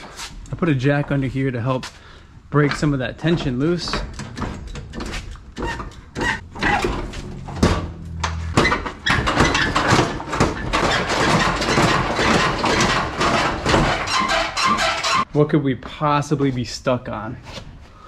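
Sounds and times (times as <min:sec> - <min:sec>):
metal clattering and scraping: 0:02.6 - 0:15.3.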